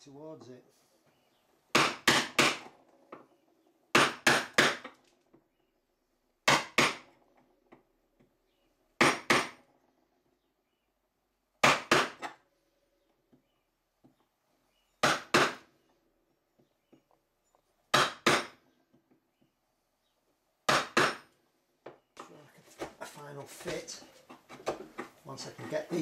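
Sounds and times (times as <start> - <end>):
chisel knocking into wood: 17.9 - 18.6, 20.7 - 21.3.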